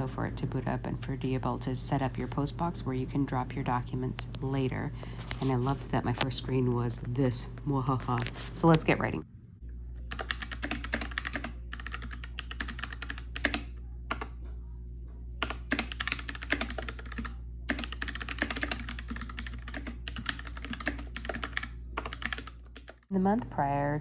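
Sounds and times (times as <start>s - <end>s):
steady low hum: 0.0s - 24.0s
mechanical keyboard typing: 10.1s - 14.3s, 15.4s - 23.0s.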